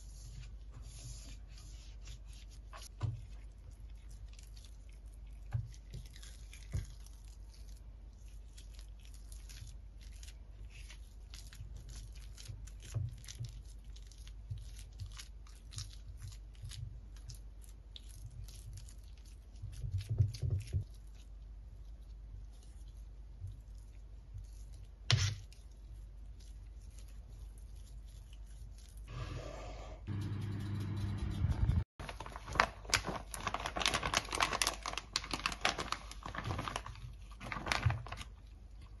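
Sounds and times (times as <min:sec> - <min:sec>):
pastry brush rubbing oil on pan: 0:00.0 - 0:05.2
spatula squishing and scraping potato: 0:00.0 - 0:32.2.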